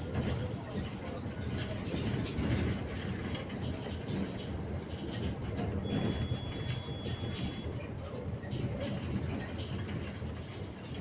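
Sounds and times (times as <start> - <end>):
bus engine and road rumble: 0.0 - 11.0.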